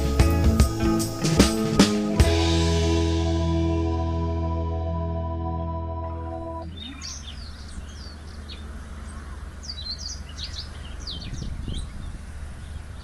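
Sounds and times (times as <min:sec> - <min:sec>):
small birds chirping: 0:06.6 - 0:13.0.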